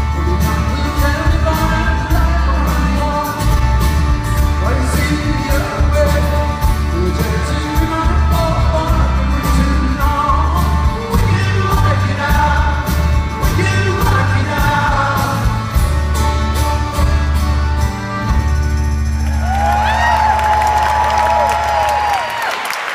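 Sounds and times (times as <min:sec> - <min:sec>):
person singing lead vocal: 0:00.0 - 0:15.8
live rock band: 0:00.0 - 0:22.6
audience whistling and cheering: 0:18.7 - 0:22.9.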